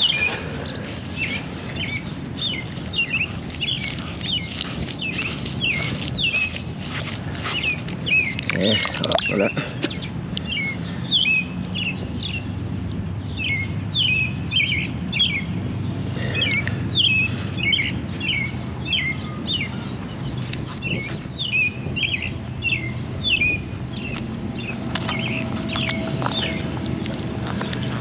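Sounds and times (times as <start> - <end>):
bird chirping: 0.0 - 15.6, 16.2 - 26.8
steady low hum: 21.2 - 28.0.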